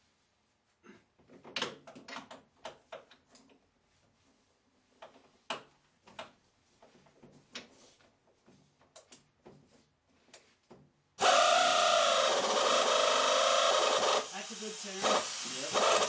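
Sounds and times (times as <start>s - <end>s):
power tool running: 11.2s - 16.0s.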